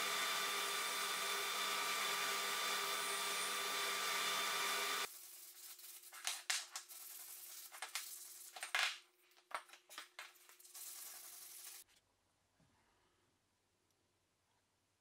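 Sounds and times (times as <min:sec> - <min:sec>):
sandpaper scratching wood: 0:02.6 - 0:08.7, 0:10.6 - 0:11.8.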